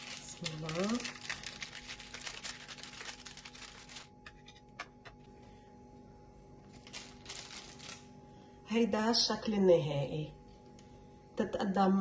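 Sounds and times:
baking paper rustling: 0.0s - 4.7s, 6.6s - 8.1s.

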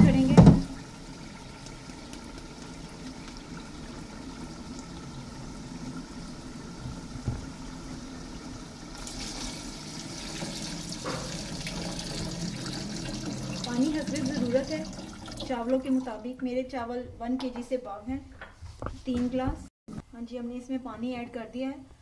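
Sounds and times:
water pouring into metal pot: 0.1s - 6.8s, 7.5s - 16.4s
knock: 0.3s - 0.7s.

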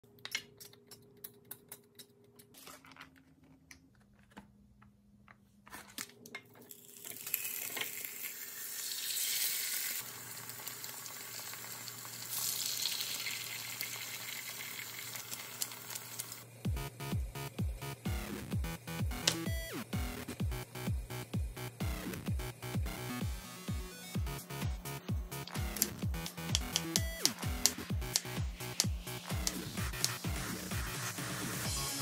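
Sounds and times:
food sizzling in oil: 7.1s - 16.4s
oil sprayer clicking and misting: 25.5s - 30.2s.

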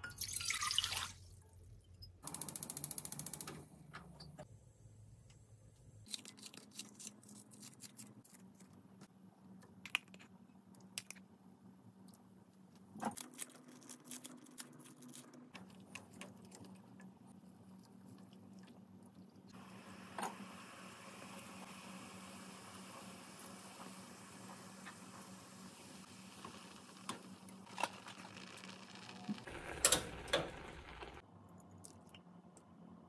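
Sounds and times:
broth boiling hiss: 19.6s - 31.2s.

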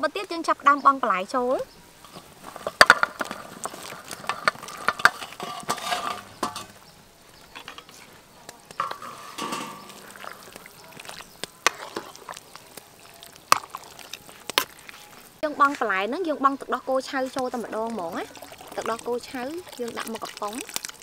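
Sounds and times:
ladle stirring in metal pot: 2.0s - 16.0s, 17.1s - 21.0s
metal clinks and knocks: 4.3s - 6.8s.

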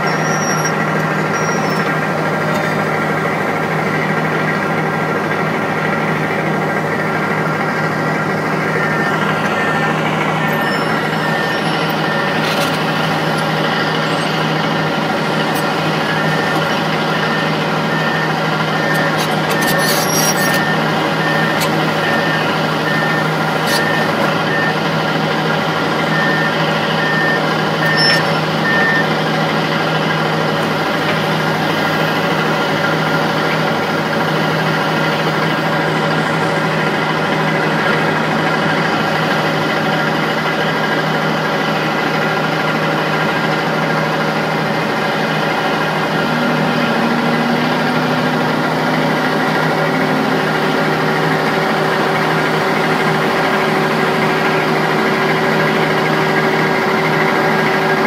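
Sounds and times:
high-pitched reversing beeps: 0.0s - 2.0s, 7.6s - 24.9s, 26.0s - 29.2s
excavator diesel engine running: 0.0s - 58.0s.

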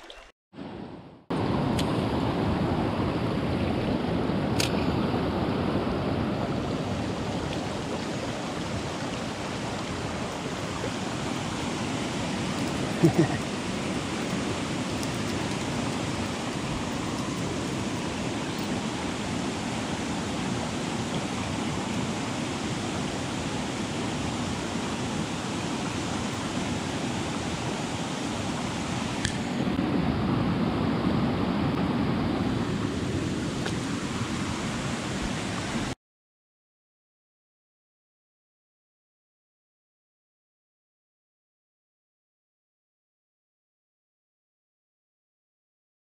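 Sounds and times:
stream rushing over stones: 0.0s - 0.3s, 1.4s - 29.8s, 31.7s - 36.0s.

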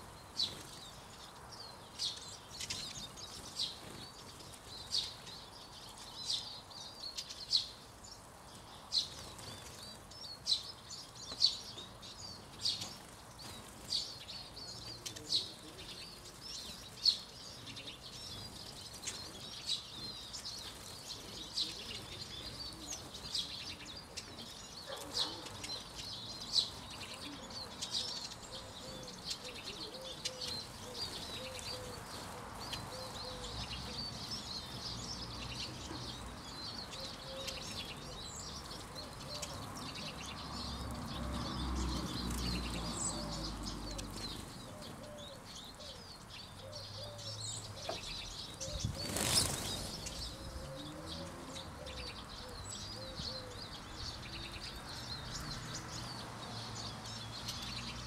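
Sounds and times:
small birds twittering: 0.0s - 58.0s
bird wingbeats: 48.9s - 50.3s.

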